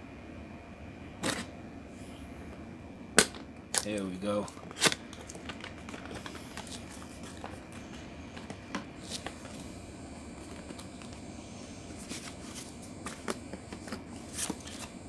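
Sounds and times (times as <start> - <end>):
steady background noise: 0.0 - 15.0
paper rustling: 4.5 - 9.7, 12.0 - 13.3.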